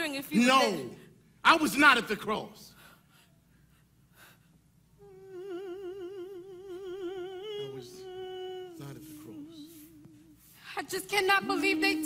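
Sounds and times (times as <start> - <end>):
woman singing wordless notes: 5.0 - 12.0.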